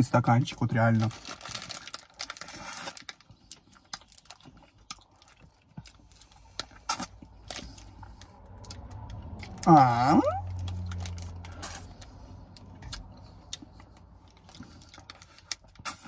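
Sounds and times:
vocal sound with bending pitch: 9.6s - 10.5s.

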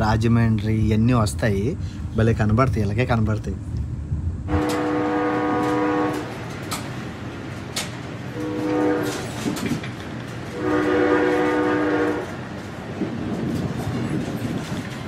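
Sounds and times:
train running noise: 0.0s - 15.0s
train horn blasts: 4.5s - 6.5s, 8.3s - 9.8s, 10.4s - 12.5s.

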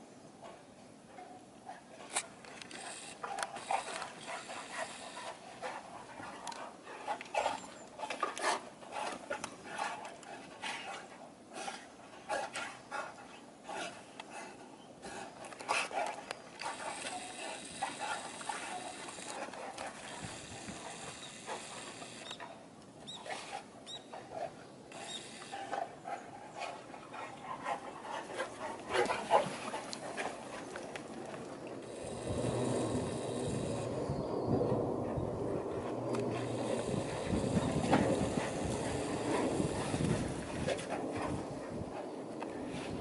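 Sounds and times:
dogs panting: 0.4s - 34.0s, 34.7s - 43.0s
steady low rushing noise: 31.1s - 43.0s.

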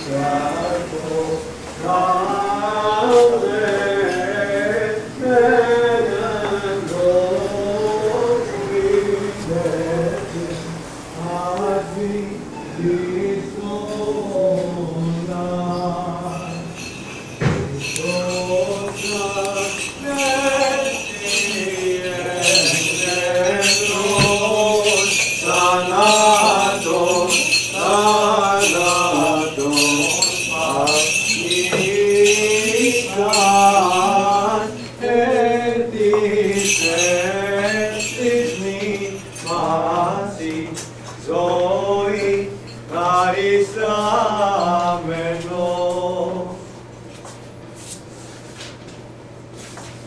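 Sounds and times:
voices singing a liturgical chant: 0.0s - 46.7s
censer bells jingling: 16.0s - 35.3s, 36.2s - 40.3s.

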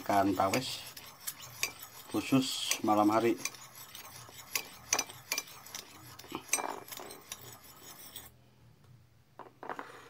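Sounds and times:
metal spoon clinking in ceramic bowl: 2.7s - 8.2s.

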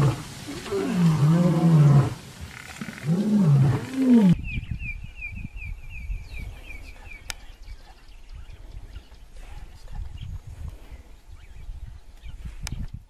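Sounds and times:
lion roaring: 0.0s - 4.4s
bird chirping: 3.8s - 12.9s.

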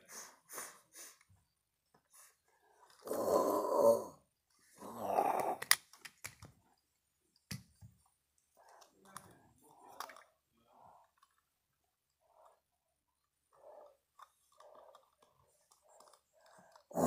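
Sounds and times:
plastic figures clicking together: 5.3s - 6.6s, 13.5s - 17.0s.

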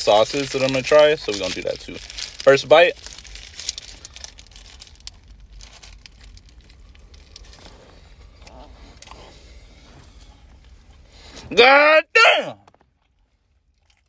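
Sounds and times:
paper wrapper crinkling: 0.0s - 10.3s.

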